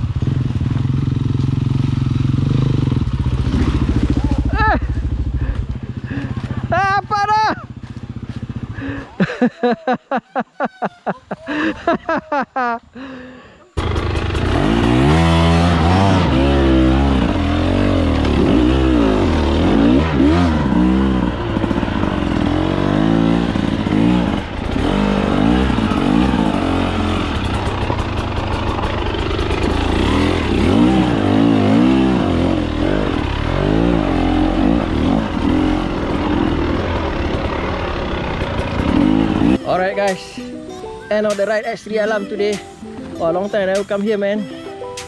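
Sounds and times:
dirt bike engine revving: 0.0s - 9.0s, 13.8s - 39.9s.

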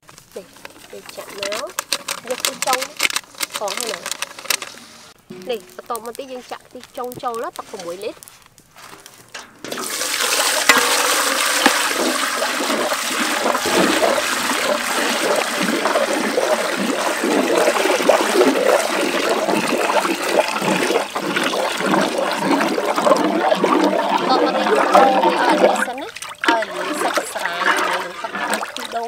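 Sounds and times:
ladle stirring liquid: 0.6s - 6.2s, 7.1s - 29.0s
milky liquid pouring into pot: 9.7s - 29.0s.

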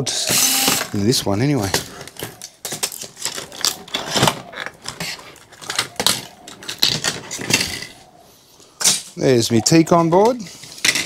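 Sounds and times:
metal parts and tools clattering: 0.3s - 8.1s, 10.2s - 11.0s.

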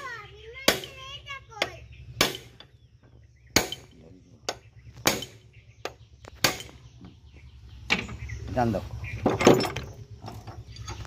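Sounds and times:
metal gears knocking and clanking: 9.2s - 11.0s.

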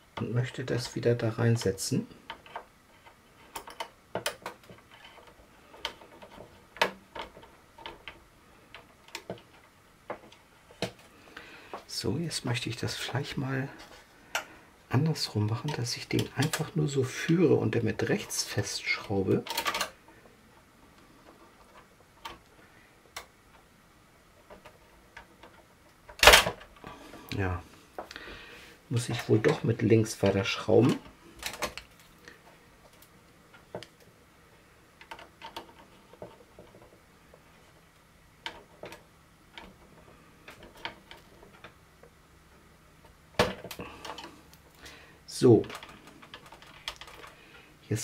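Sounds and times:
small tools clicking on plastic parts: 45.6s - 47.4s.

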